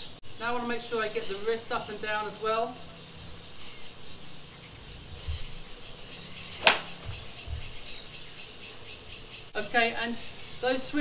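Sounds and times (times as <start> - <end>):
golf club striking ball: 6.6 - 7.4.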